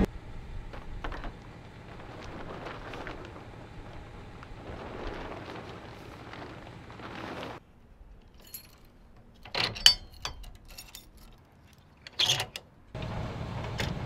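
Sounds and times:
background rush: 0.0s - 9.4s
metal chains clinking: 8.2s - 11.4s.

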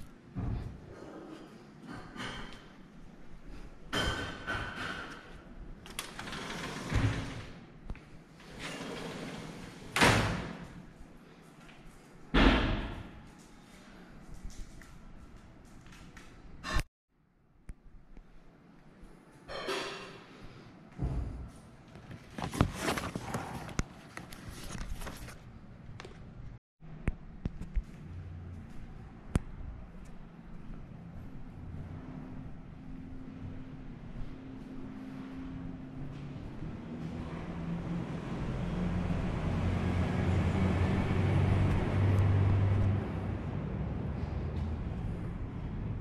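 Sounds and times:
vehicle engine rumbling: 26.8s - 46.0s.

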